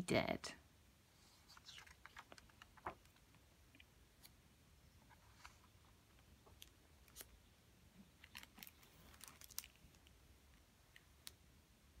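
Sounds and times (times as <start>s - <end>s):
paper rustling: 1.3s - 3.4s, 8.2s - 10.0s.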